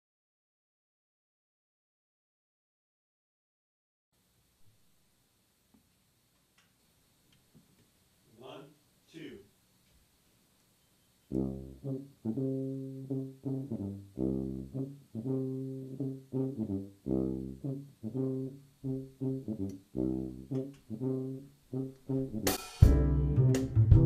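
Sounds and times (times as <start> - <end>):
tuba ensemble playing chords: 11.3 - 24.0.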